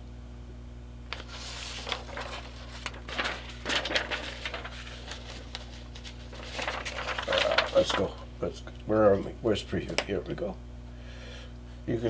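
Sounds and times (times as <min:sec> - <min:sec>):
paper rustling and crinkling: 0:01.1 - 0:08.3.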